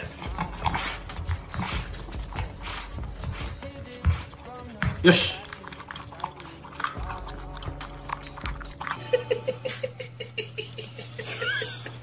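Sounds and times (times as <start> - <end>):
dog crunching dry kibble: 0.0 - 3.0, 4.3 - 9.0.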